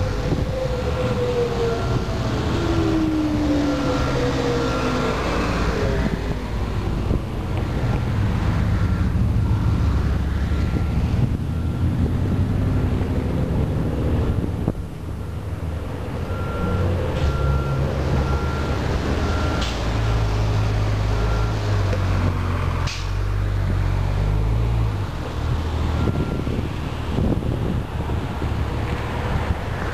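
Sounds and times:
wind rumble on microphone: 0.0s - 4.1s, 5.7s - 16.8s, 24.8s - 29.9s.

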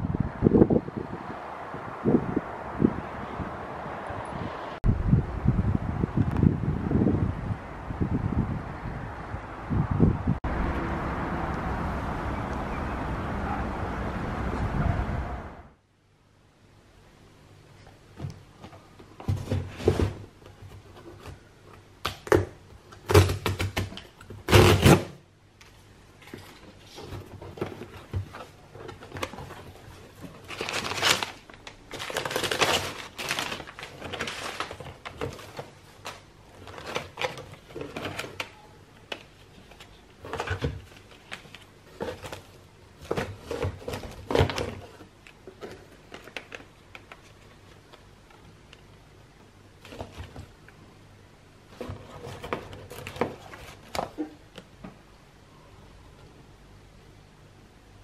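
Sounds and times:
plastic packaging rustling: 26.2s - 48.1s, 51.7s - 54.4s
packing paper crinkling: 26.4s - 38.5s.

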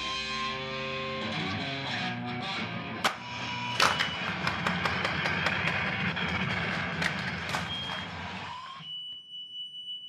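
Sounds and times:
electric guitar crackle and buzzing: 0.0s - 8.5s.

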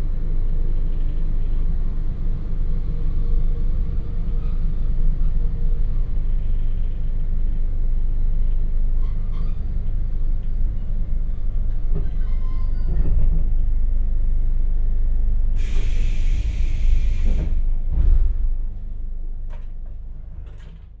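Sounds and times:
low transformer hum: 0.0s - 21.0s
train rumble: 0.0s - 21.0s
compressed air hissing: 15.6s - 17.6s.

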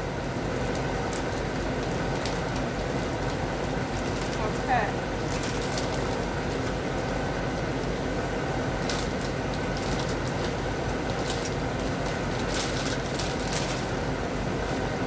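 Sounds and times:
plastic bag crinkling: 0.5s - 7.2s, 8.8s - 14.1s.

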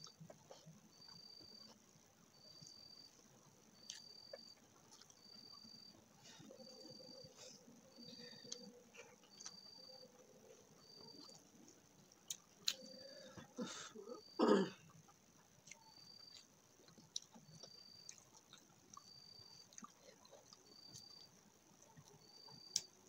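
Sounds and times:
eating sounds: 3.8s - 22.9s
person clearing throat: 13.6s - 14.8s.

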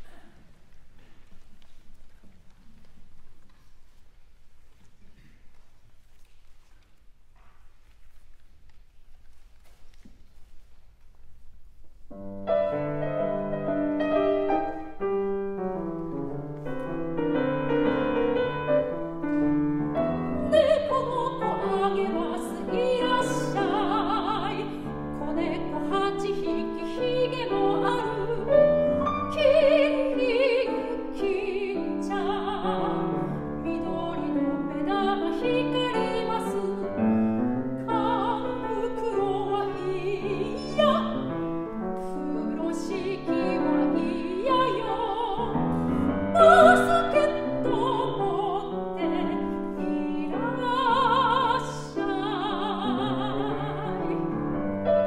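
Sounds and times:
grand piano: 0.0s - 55.0s
soprano singing: 12.4s - 55.0s.

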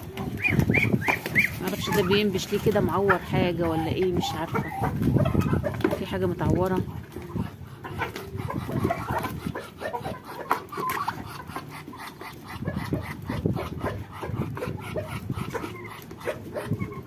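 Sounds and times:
birds pecking clicks: 0.0s - 12.5s
scattered bird calls: 0.0s - 17.0s.

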